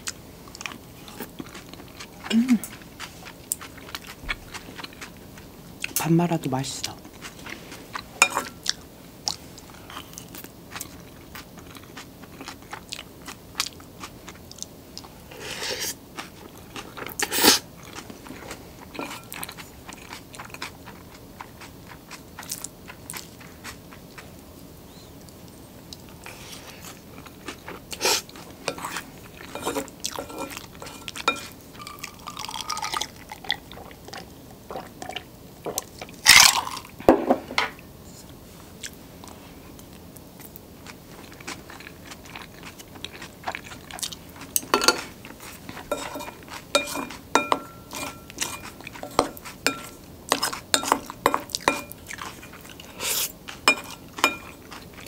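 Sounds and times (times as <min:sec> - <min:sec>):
wet chewing: 0:00.0 - 0:06.0, 0:39.9 - 0:55.0.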